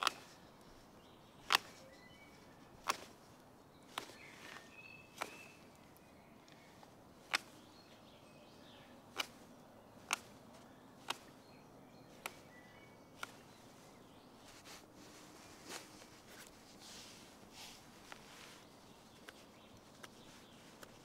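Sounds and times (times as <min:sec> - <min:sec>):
knife cutting wood: 0:00.0 - 0:00.3, 0:01.4 - 0:01.9, 0:02.8 - 0:03.2, 0:03.9 - 0:05.6
faint bird chirps: 0:00.0 - 0:21.0.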